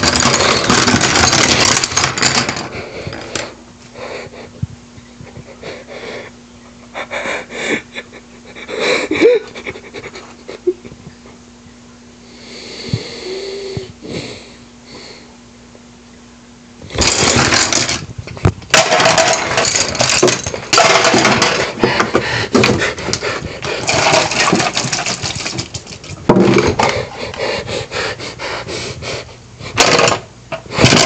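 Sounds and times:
garbage disposal running: 0.0 - 3.6, 16.8 - 28.0.

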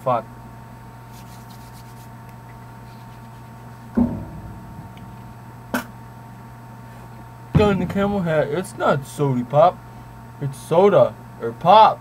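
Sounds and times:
low electrical hum: 0.0 - 12.0
low thud: 3.9 - 5.9, 7.6 - 9.1.

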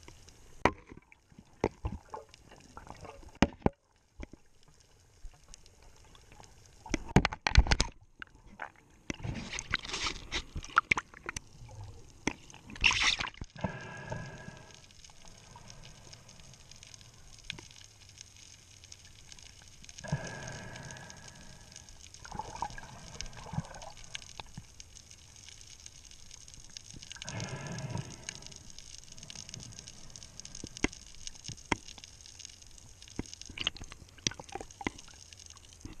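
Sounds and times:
underwater gurgling and bubbling: 1.0 - 4.3, 5.2 - 18.2, 19.2 - 24.8, 26.8 - 32.0.

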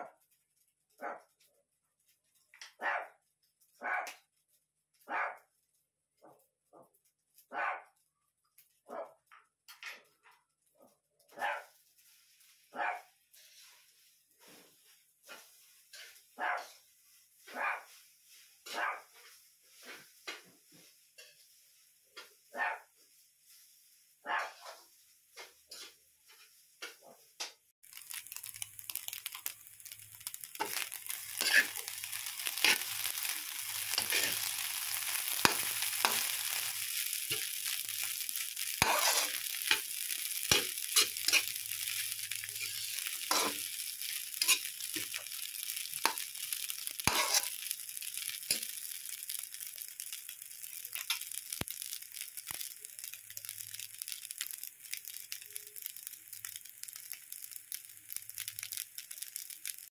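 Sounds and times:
rice sizzling in a wok: 0.0 - 2.8, 3.4 - 6.0, 9.6 - 59.9
metal spatula scraping a wok: 13.3 - 16.8, 24.5 - 26.7, 29.0 - 49.9.

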